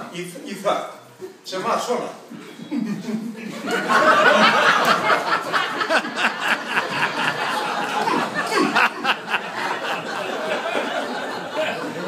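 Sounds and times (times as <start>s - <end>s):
audience laughing: 2.7s - 12.0s.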